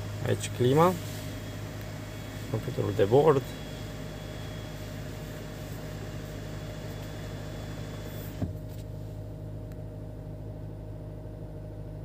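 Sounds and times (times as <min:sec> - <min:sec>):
car engine idling: 0:00.0 - 0:09.3
climate fan blowing: 0:00.0 - 0:10.1.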